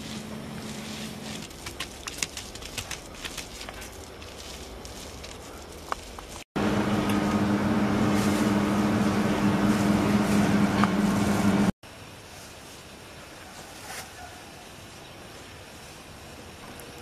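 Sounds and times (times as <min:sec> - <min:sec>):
machine hum: 0:06.6 - 0:11.8.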